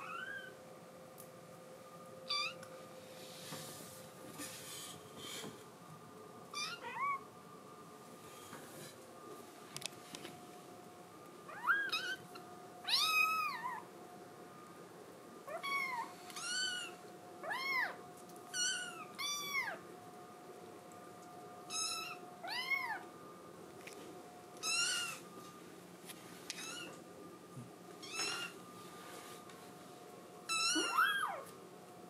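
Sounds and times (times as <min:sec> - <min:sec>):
kitten meowing: 0:00.0 - 0:00.6, 0:02.3 - 0:02.6, 0:06.5 - 0:07.2, 0:11.5 - 0:12.3, 0:12.9 - 0:13.8, 0:15.5 - 0:19.8, 0:24.6 - 0:25.2, 0:26.6 - 0:27.0, 0:30.5 - 0:31.5.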